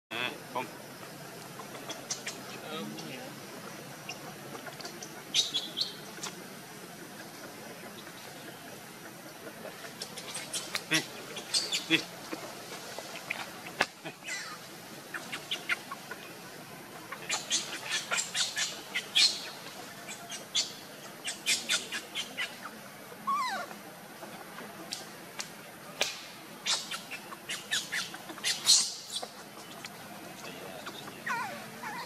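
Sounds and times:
animal squeaks and chirps: 1.9 - 2.5, 4.8 - 6.3, 10.0 - 12.0, 17.3 - 22.7, 23.3 - 23.7, 26.6 - 29.9, 30.8 - 32.0.

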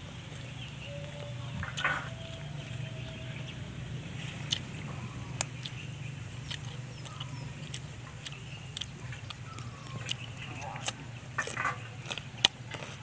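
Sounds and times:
low hum: 0.0 - 13.0
chewing mouth noises: 4.2 - 13.0.

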